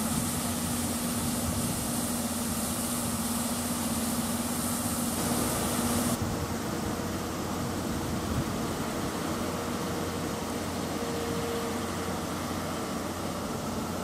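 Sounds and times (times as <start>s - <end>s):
hiss: 0.0s - 6.6s
train mechanical hum: 0.0s - 14.0s.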